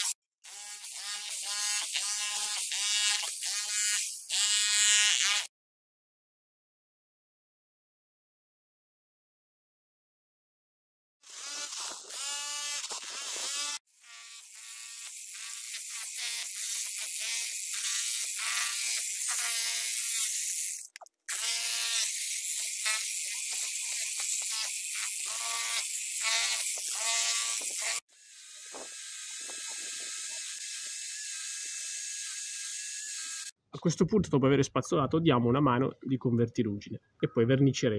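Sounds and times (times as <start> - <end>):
drill wire brush whining on pipe: 11.2 - 33.6.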